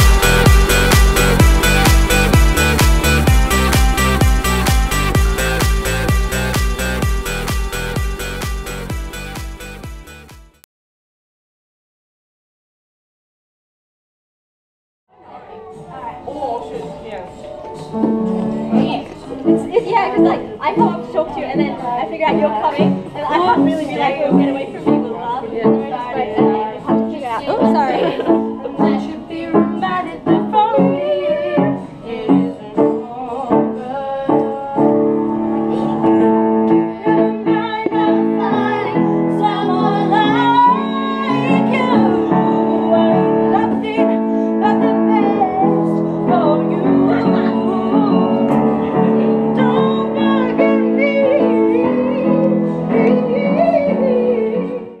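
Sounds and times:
person singing: 0:00.0 - 0:09.9, 0:27.8 - 0:55.0
piano chords: 0:00.0 - 0:10.4, 0:15.2 - 0:54.8.

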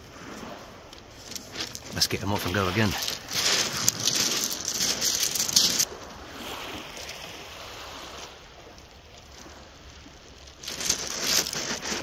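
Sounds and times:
light wind: 0:00.0 - 0:12.0
sea washing: 0:00.0 - 0:12.0.

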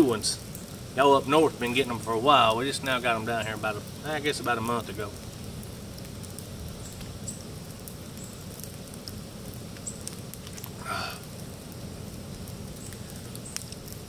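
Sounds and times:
short breath out: 0:10.8 - 0:11.3.

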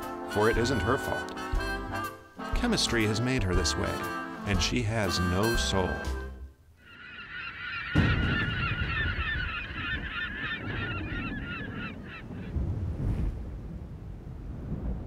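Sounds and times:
flock of geese honking: 0:06.8 - 0:12.5.

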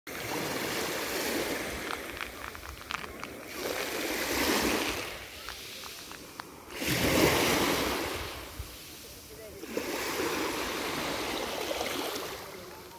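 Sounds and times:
small waves washing on shore: 0:00.1 - 0:12.9
faint crackling clicks: 0:01.7 - 0:03.5, 0:05.3 - 0:06.6.

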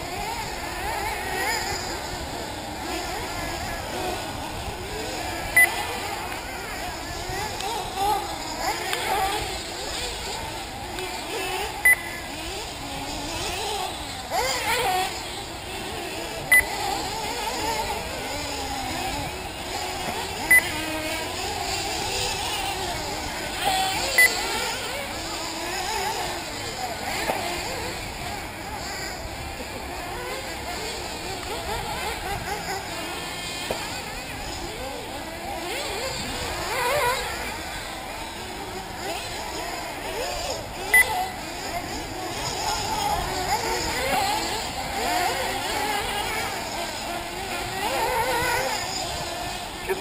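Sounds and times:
model buggy engines buzzing: 0:00.0 - 0:50.0
high beeps: 0:11.8 - 0:12.1.

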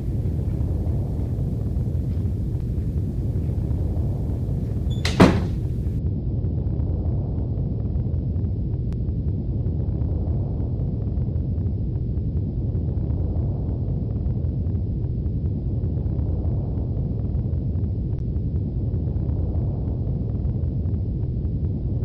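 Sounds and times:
door slamming shut: 0:00.0 - 0:06.0
steady low rumble: 0:00.0 - 0:22.0.

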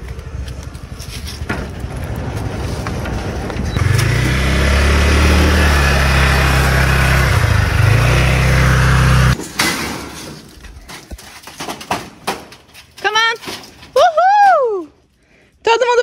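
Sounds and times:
scooter engine running: 0:01.8 - 0:09.4.

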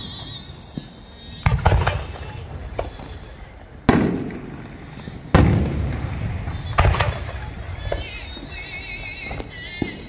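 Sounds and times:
firework cracks: 0:00.0 - 0:10.0
firework booms with echo: 0:01.4 - 0:10.0.

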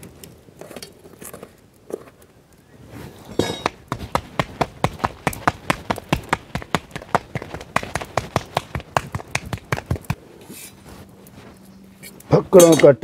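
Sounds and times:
hands patting dough: 0:03.6 - 0:10.2.

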